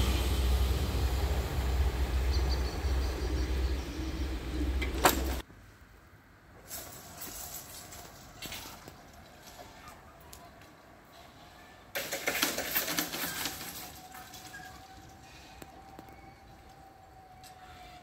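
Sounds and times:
high whine from wheels and rails: 0:00.0 - 0:05.4, 0:13.0 - 0:18.0
passenger train rumbling: 0:00.0 - 0:05.4, 0:13.0 - 0:18.0.

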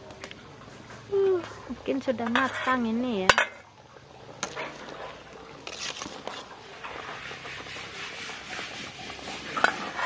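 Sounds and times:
water boiling: 0:00.0 - 0:10.0
metal ladle scraping a pot: 0:02.2 - 0:03.7, 0:04.4 - 0:10.0.

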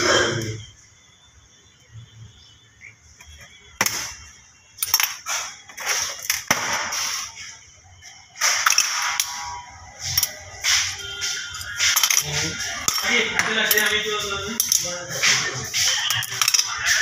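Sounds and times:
small metal parts clinking: 0:04.8 - 0:06.7, 0:08.4 - 0:14.9, 0:16.0 - 0:17.0.

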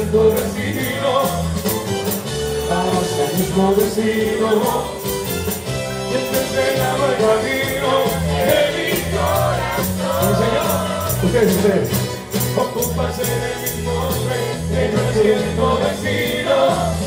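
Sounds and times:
man singing into microphone: 0:00.0 - 0:05.0, 0:06.1 - 0:11.8, 0:12.5 - 0:17.0
backing track with beat and bass: 0:00.0 - 0:17.0.

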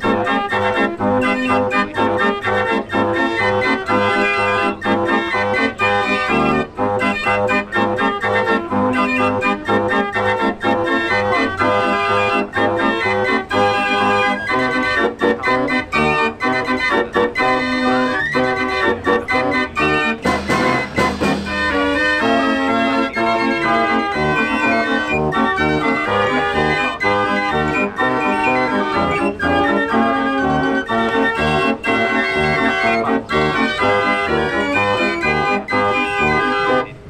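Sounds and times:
fair organ playing a tune: 0:00.0 - 0:37.0
percussion burst: 0:20.2 - 0:22.1.

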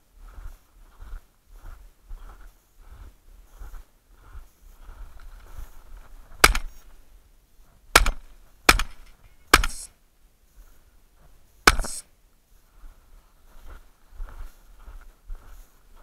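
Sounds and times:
gunshots: 0:06.4 - 0:06.7, 0:08.0 - 0:09.9, 0:11.7 - 0:12.0.

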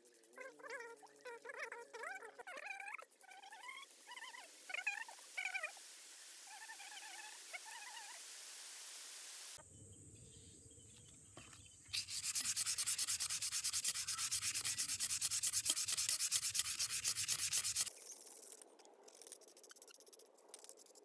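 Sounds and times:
sandpaper sanding wet metal: 0:11.9 - 0:17.9.

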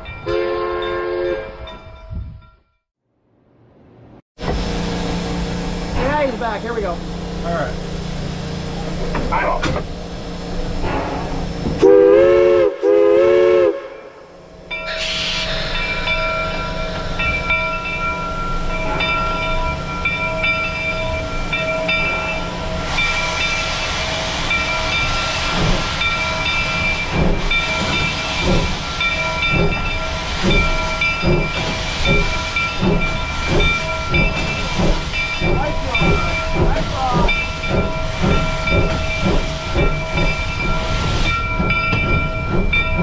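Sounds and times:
locomotive exhaust chuffs: 0:04.4 - 0:43.0
steam whistle blasts: 0:10.9 - 0:14.3
loud steam hiss: 0:14.9 - 0:17.4, 0:21.9 - 0:42.2.

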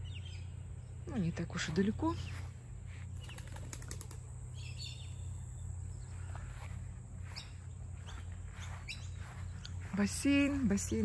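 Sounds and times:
steady low rumble: 0:04.2 - 0:11.0
faint bird chirps: 0:04.5 - 0:09.9.

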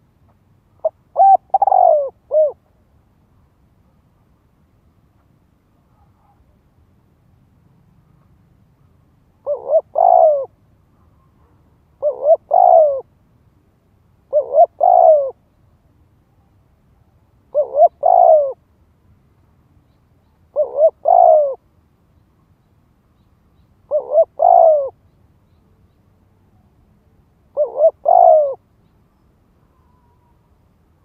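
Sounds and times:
dove cooing: 0:00.8 - 0:02.7, 0:09.4 - 0:13.1, 0:14.3 - 0:15.4, 0:17.5 - 0:18.6, 0:20.5 - 0:21.6, 0:23.9 - 0:25.0, 0:27.5 - 0:28.6.

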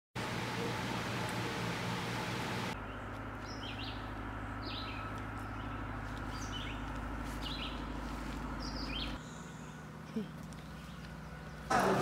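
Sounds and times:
small bird chirping: 0:02.8 - 0:07.9, 0:08.6 - 0:11.7.

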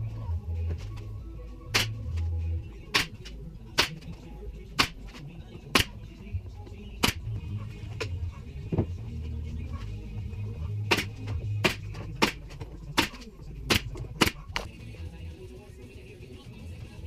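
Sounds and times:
nail gun shots: 0:01.7 - 0:02.0, 0:03.0 - 0:04.0.

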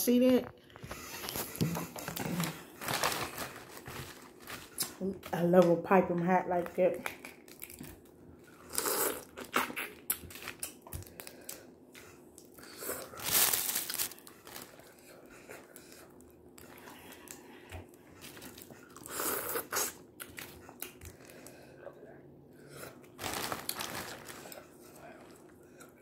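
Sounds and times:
paper and plastic bag crinkling: 0:01.2 - 0:05.1, 0:13.0 - 0:14.9, 0:23.1 - 0:24.8.

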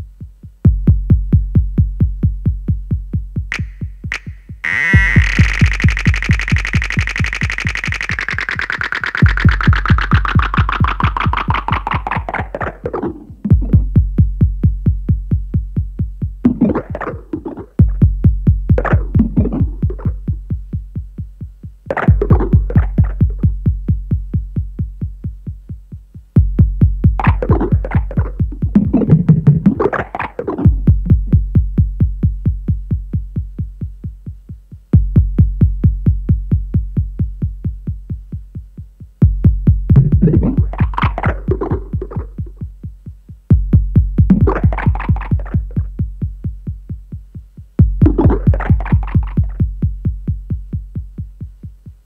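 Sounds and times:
low bass tone: 0:03.5 - 0:08.4, 0:39.7 - 0:40.8
synthesized pulse: 0:03.5 - 0:13.8.

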